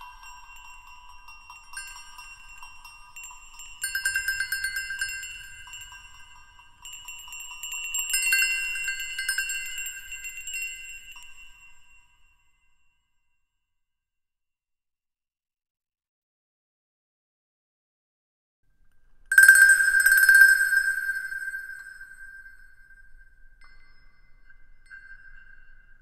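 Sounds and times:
chimes tinkling: 0:00.0 - 0:13.1, 0:19.3 - 0:26.0.

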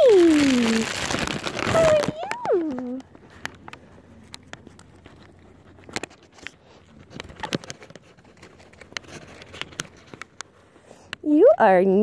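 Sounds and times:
deer chewing food: 0:02.6 - 0:11.2.

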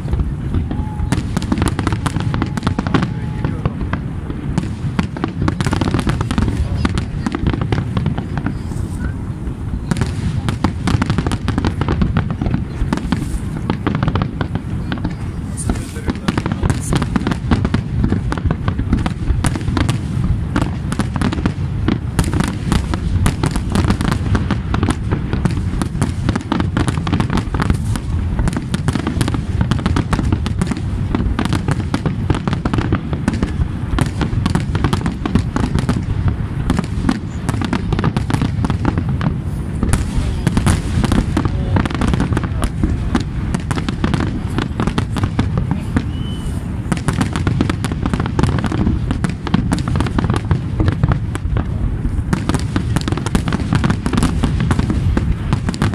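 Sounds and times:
fireworks bursting: 0:00.0 - 0:55.9.

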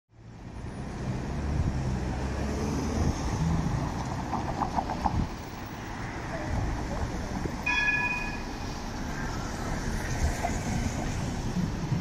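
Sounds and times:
tram rumbling: 0:00.4 - 0:12.0
tram warning bell ringing: 0:07.6 - 0:08.8.

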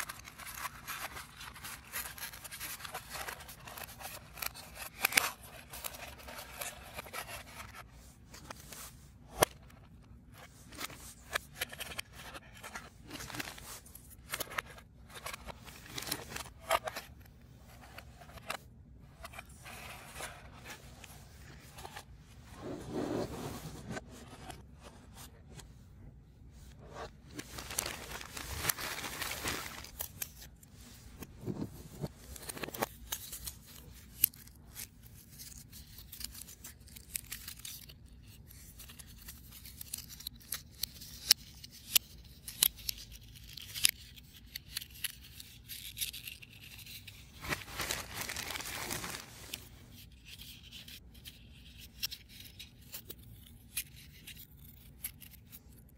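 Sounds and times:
rustling scrape: 0:19.2 - 0:25.8.

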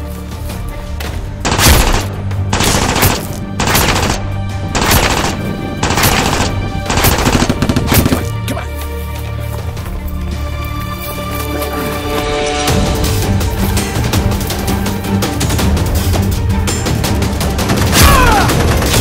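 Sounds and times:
background music: 0:00.0 - 0:19.0
machine-gun fire: 0:01.4 - 0:08.2.

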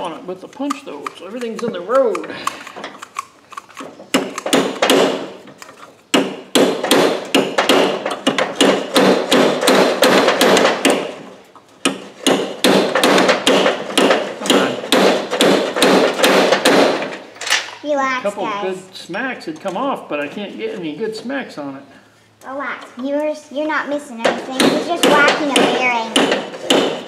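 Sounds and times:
hammer blows on metal bearing: 0:11.9 - 0:17.0.

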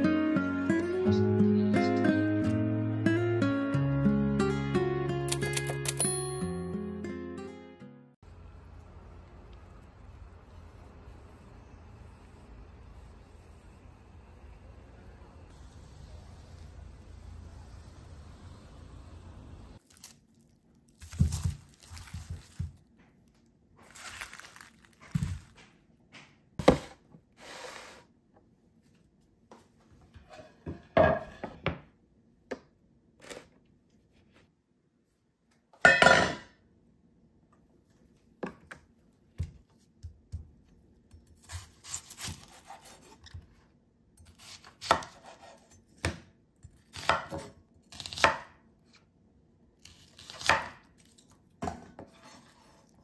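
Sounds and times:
onions being handled: 0:19.8 - 0:22.9, 0:23.8 - 0:25.7
knife cutting on wooden board: 0:41.4 - 0:43.4, 0:44.3 - 0:45.8.

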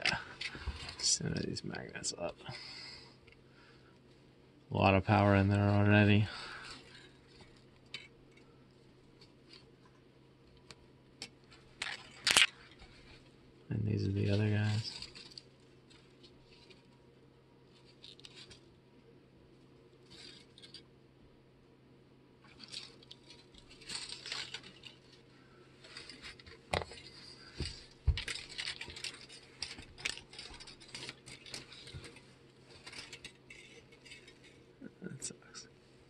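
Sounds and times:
plastic bobbins and wire rustling: 0:00.0 - 0:03.4, 0:04.0 - 0:21.0, 0:22.4 - 0:36.0
core pieces and magnets clicking: 0:10.5 - 0:12.9.

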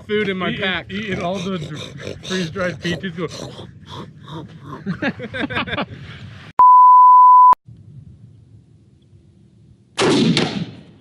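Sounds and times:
censor bleep: 0:06.6 - 0:07.6
rifle shot: 0:10.0 - 0:11.0.

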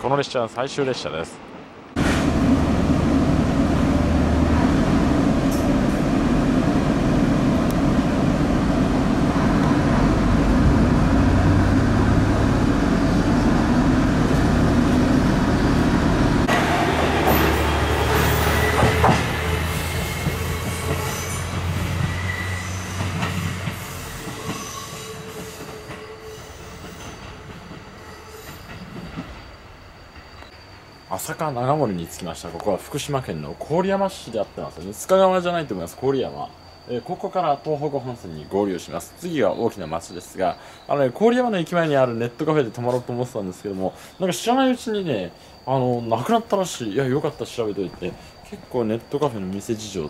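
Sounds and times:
diesel railcar engine hum: 0:01.4 - 0:40.9
railcar rattling and squeaking: 0:03.3 - 0:50.0.

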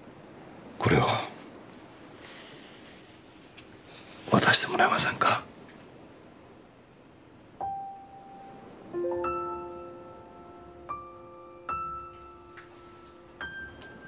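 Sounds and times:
slow piano music: 0:07.5 - 0:14.0.

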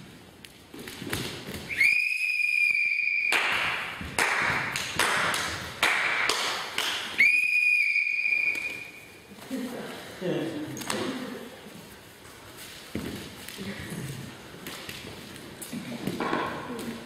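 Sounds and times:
high-pitched whistle blasts: 0:01.7 - 0:03.8, 0:07.2 - 0:09.2.

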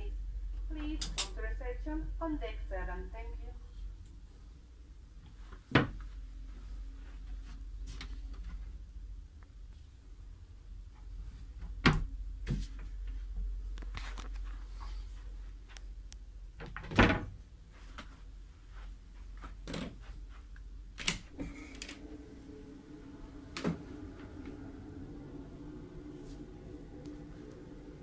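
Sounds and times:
second steady hum: 0:00.0 - 0:16.6, 0:17.4 - 0:28.0
steady low hum: 0:00.0 - 0:28.0
doors opening and shutting: 0:16.6 - 0:17.4, 0:20.9 - 0:28.0.

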